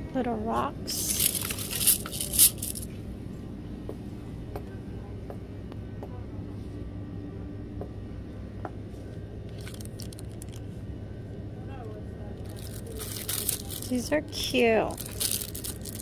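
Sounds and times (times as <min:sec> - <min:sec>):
store background hum: 0:00.0 - 0:16.0
glass gems rattling in bag: 0:01.0 - 0:02.9, 0:12.5 - 0:16.0.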